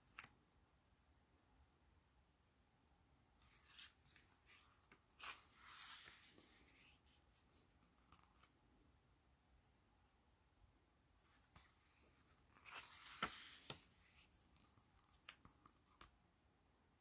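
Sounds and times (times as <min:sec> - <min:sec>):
book page turning: 0:03.4 - 0:08.5, 0:11.3 - 0:16.1
page swish: 0:12.6 - 0:14.3.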